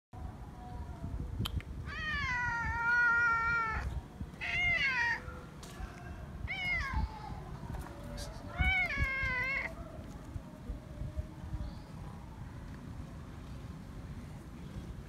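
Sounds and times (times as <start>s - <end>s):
cat meowing: 1.9s - 5.2s, 6.5s - 7.3s, 8.5s - 9.8s.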